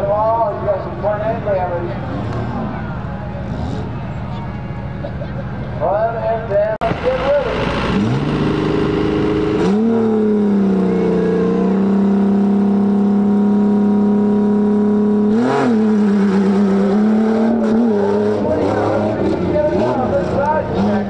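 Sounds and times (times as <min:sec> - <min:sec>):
engine revving high: 0:06.9 - 0:21.0.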